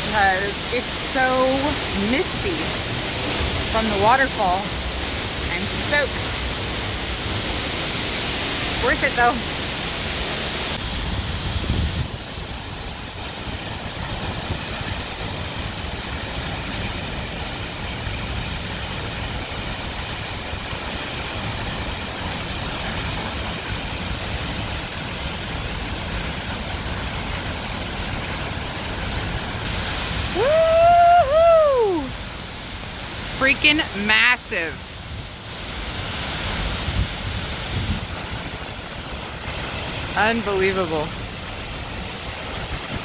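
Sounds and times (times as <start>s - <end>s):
waterfall rushing: 0.0s - 43.0s
high voice crying out: 30.3s - 32.1s.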